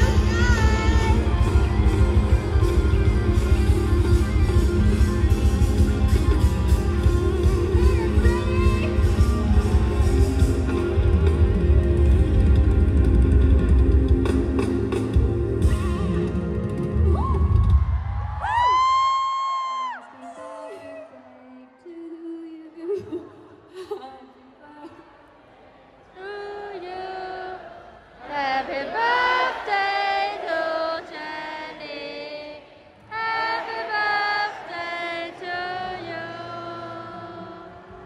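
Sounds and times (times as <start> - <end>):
woman singing slow melody: 0.0 - 2.2, 20.3 - 25.0
concert music: 0.0 - 21.2
high-pitched whoop: 17.1 - 21.3.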